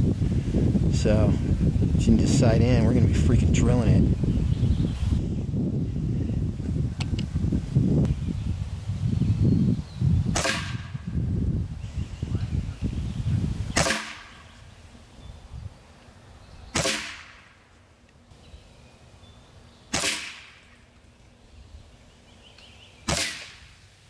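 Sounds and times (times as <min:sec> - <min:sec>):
air rifle shots: 0:10.3 - 0:11.0, 0:13.8 - 0:14.4, 0:16.7 - 0:17.6, 0:19.9 - 0:20.7, 0:23.0 - 0:23.8.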